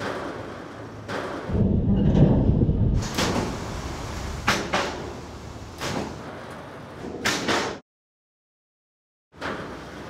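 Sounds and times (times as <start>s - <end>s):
trucks clunking and slamming: 0.0s - 7.8s, 9.4s - 10.0s
low rumble: 1.5s - 4.5s.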